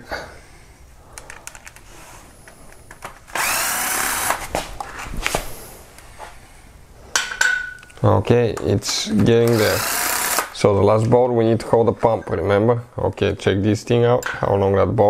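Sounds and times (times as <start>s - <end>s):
impact wrench running: 3.3s - 4.5s, 9.3s - 10.6s.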